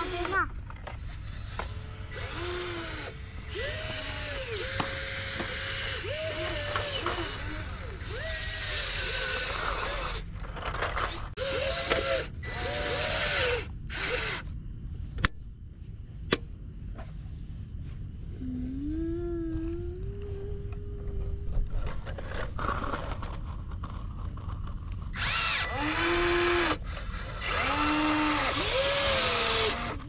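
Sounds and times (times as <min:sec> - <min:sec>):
electric motors whining: 0:00.0 - 0:14.6, 0:25.1 - 0:30.0.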